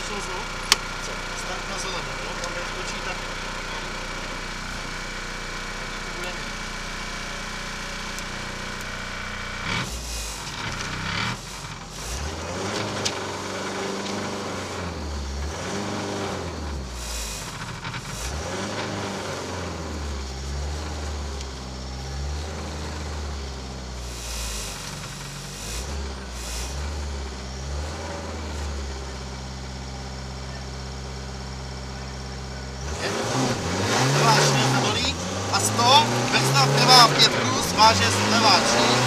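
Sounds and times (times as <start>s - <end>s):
car engine revving: 0.0s - 39.0s.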